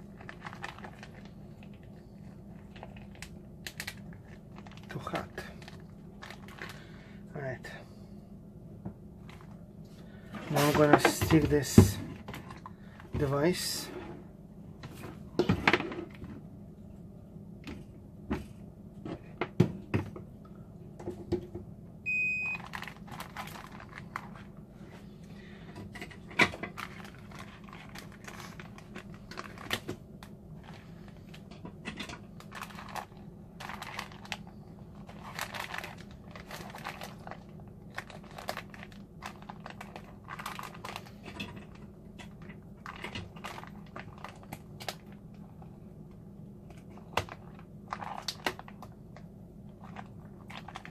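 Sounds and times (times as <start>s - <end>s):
plastic bags crinkling: 0.0s - 6.9s, 22.5s - 24.6s, 26.2s - 31.5s, 32.1s - 45.4s, 46.7s - 50.9s
steady low hum: 0.0s - 50.9s.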